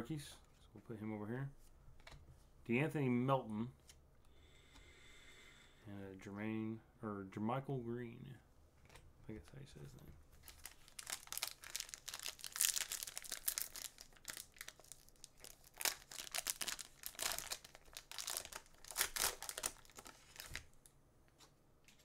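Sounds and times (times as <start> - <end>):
plastic wrapper crinkling: 10.4 - 20.8.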